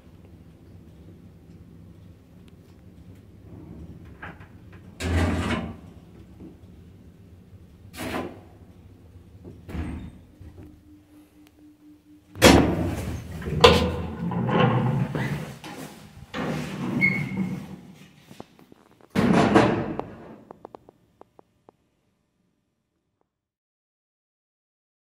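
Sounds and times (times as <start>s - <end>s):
lift motor hum: 0.0s - 17.8s
sharp bang: 12.4s - 14.0s
lift door mechanical clunks: 12.4s - 15.4s
door knocks and rattling: 19.1s - 20.3s.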